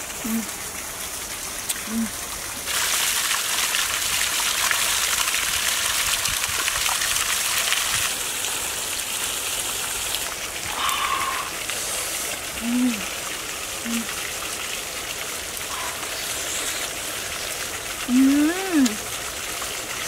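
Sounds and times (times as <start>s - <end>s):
fountain water trickling and splashing: 0.0s - 20.0s.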